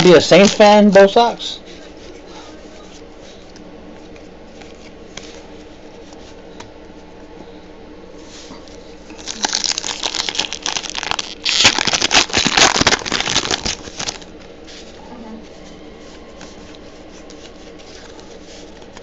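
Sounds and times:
foil wrapper tearing and crinkling: 9.1 - 14.3
faint card handling: 16.1 - 19.0.

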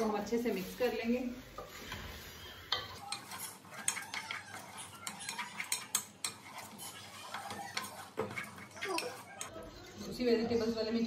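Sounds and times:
metal spoon stirring lentils in pot: 1.6 - 9.6.

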